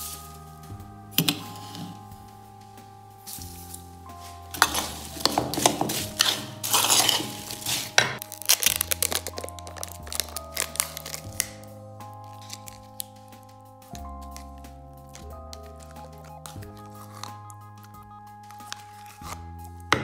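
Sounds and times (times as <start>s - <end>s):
background music sustained notes: 0.0s - 20.0s
spoon stirring in wooden bowl: 4.2s - 8.2s, 14.0s - 19.3s.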